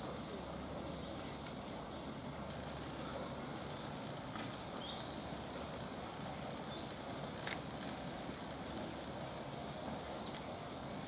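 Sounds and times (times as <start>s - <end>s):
outdoor background noise: 0.0s - 11.0s
high thin whistled calls: 6.7s - 7.4s, 9.3s - 10.6s.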